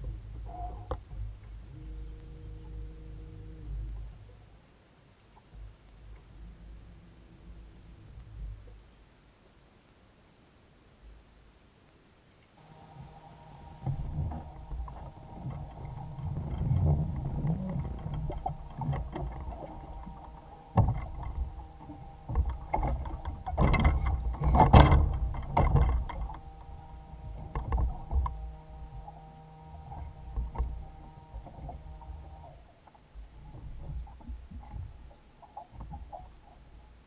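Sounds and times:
low rumble: 5.4s - 9.4s, 12.6s - 37.0s.

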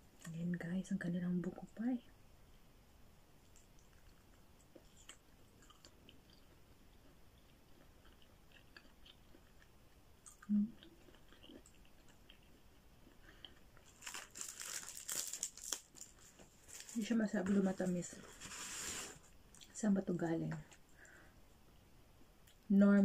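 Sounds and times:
person chewing: 3.5s - 15.5s
plastic wrapping crinkling: 13.8s - 19.3s.

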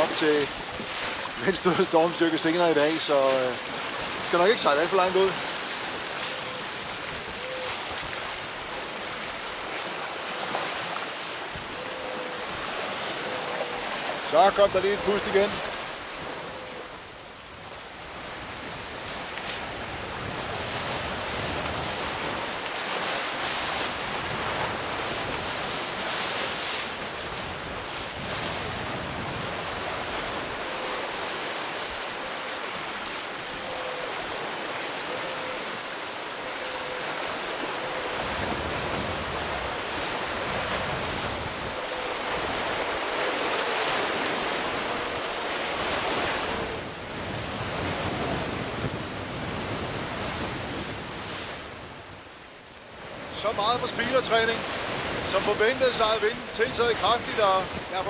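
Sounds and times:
water rushing past hull: 0.0s - 58.0s
strong wind: 37.9s - 52.3s.

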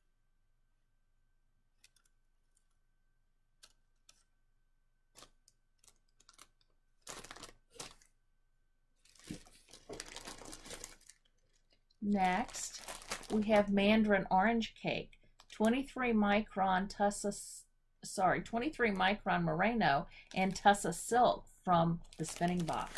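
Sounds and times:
plastic packet crinkling and rustling: 5.1s - 8.2s, 9.0s - 13.8s, 20.1s - 21.1s, 22.0s - 22.9s.

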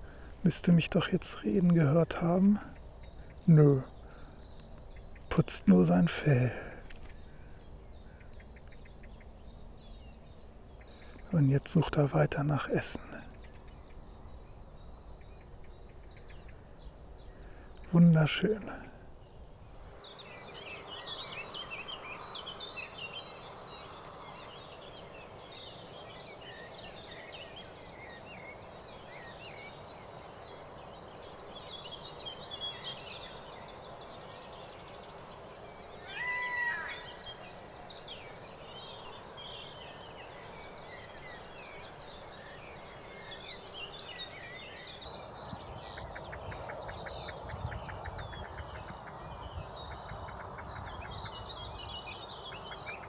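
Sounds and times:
small songbirds chirping: 0.0s - 53.0s
loud short bird call: 36.0s - 37.3s.

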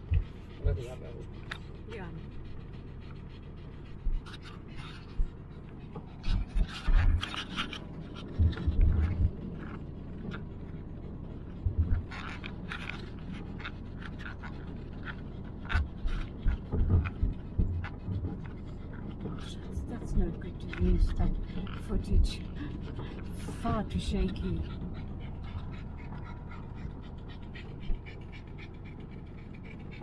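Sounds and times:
tyres and engine rumble: 0.0s - 30.0s
car knocks and rattles over bumps: 5.8s - 10.6s, 11.4s - 26.8s.

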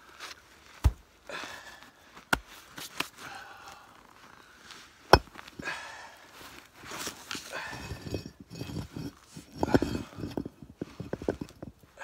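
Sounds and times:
soft scuffing and rustling: 2.0s - 3.2s, 6.2s - 8.1s.

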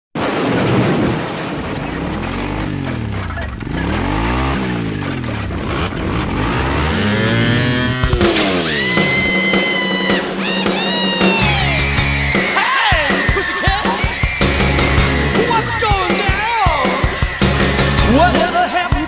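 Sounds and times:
vehicle engine revving: 1.4s - 9.6s
band music: 7.8s - 19.0s.

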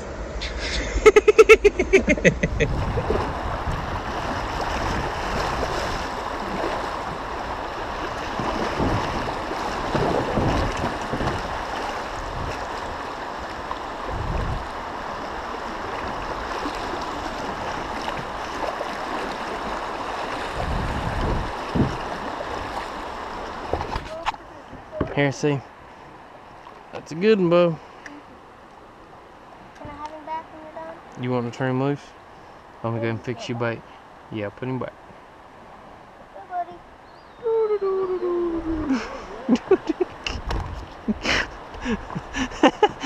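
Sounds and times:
wind rumble on microphone: 1.7s - 25.2s, 40.2s - 43.0s
river rapids rushing and splashing: 2.7s - 26.9s.

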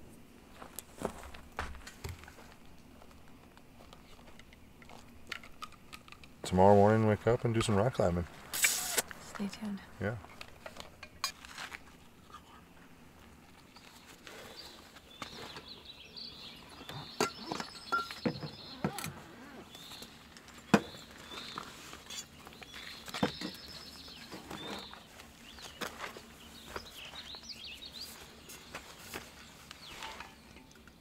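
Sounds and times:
small birds chirping: 12.2s - 31.0s.

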